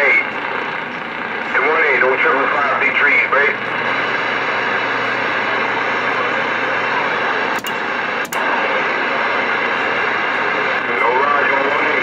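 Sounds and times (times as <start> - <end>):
radio static hiss: 0.0 - 12.0
radio clicks: 6.5 - 8.6.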